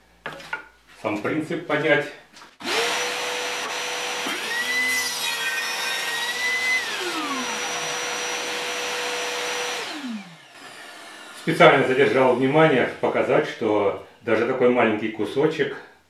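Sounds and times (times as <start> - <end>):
table saw whining: 2.6 - 13.0
saw blade cutting wood: 2.7 - 11.8.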